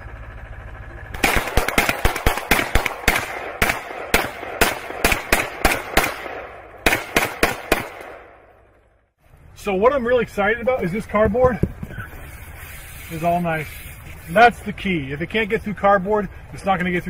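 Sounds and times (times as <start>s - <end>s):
rapid gunfire: 1.2s - 8.4s.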